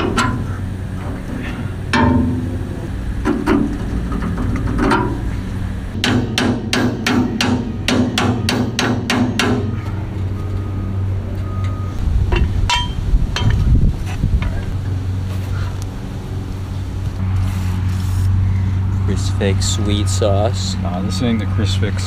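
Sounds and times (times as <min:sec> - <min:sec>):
hammer striking steel: 0:01.9 - 0:02.7, 0:06.0 - 0:09.8, 0:12.3 - 0:13.6.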